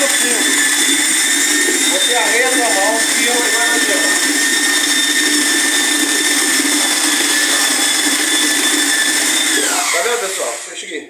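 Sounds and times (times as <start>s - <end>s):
electric drill mixing mortar: 0.0s - 11.0s.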